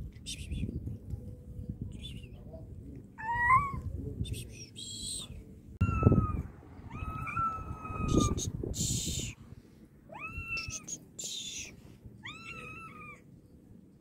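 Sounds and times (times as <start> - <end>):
cats meowing: 5.8 - 8.5, 10.1 - 11.0, 12.2 - 13.3.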